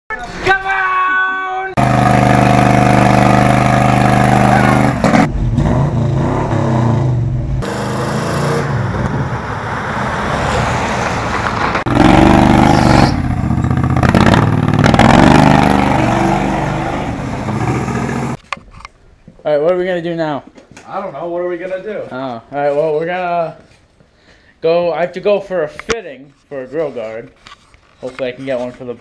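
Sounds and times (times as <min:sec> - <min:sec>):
small go-kart engine running: 0:01.8 - 0:05.3, 0:11.9 - 0:18.4
vehicle engines running: 0:01.8 - 0:18.4.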